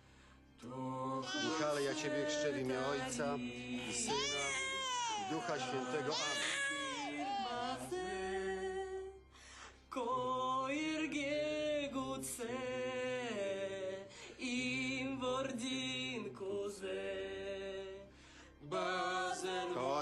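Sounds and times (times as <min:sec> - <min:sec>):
voices singing a slow chant: 0:00.0 - 0:20.0.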